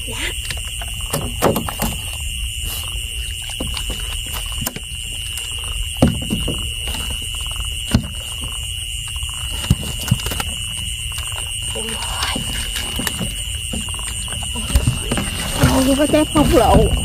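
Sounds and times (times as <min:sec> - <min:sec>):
night insects droning: 0:00.0 - 0:17.0
knocks and splashes in water: 0:12.1 - 0:17.0
low rumble: 0:14.4 - 0:17.0.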